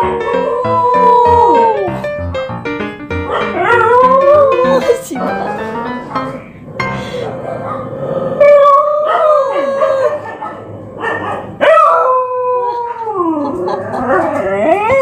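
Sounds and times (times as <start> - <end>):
dog howling: 0.0 - 2.0, 3.3 - 5.0, 7.5 - 15.0.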